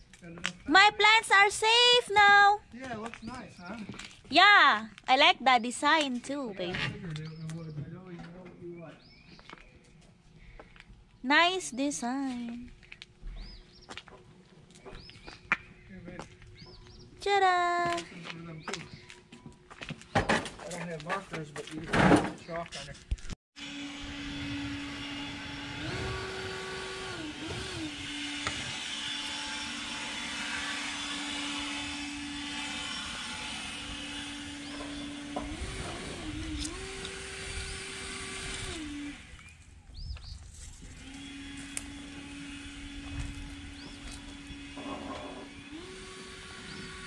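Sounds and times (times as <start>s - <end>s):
motor-like drone: 23.6s - 47.0s.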